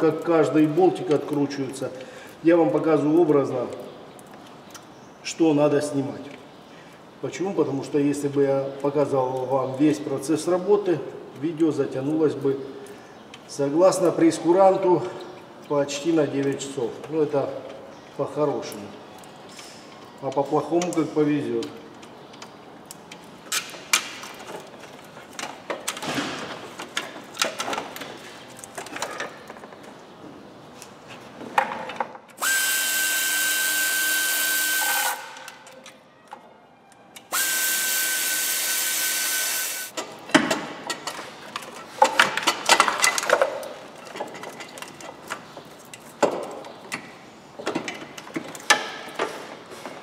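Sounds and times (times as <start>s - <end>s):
power tool whining: 32.4s - 35.5s, 37.3s - 39.9s.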